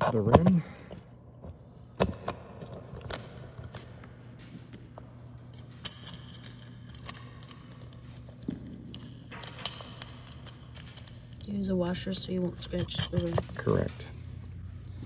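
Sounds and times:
metal bolt clinking: 5.4 - 13.8.

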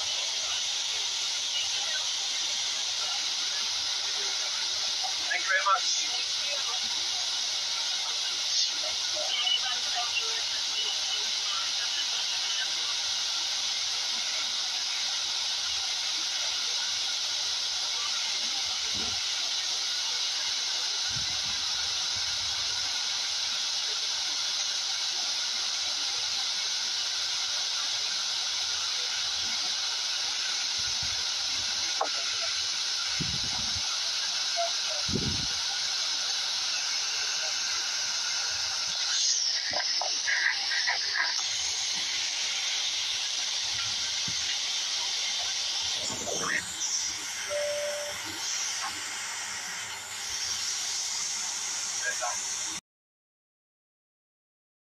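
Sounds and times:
airliner cabin hiss: 0.0 - 52.8.

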